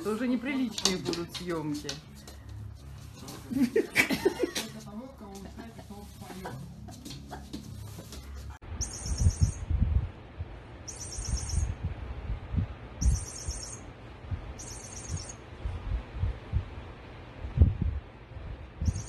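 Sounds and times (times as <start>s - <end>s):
high electronic chirps: 8.8s - 9.7s, 10.8s - 11.8s, 13.0s - 13.9s, 14.6s - 15.4s.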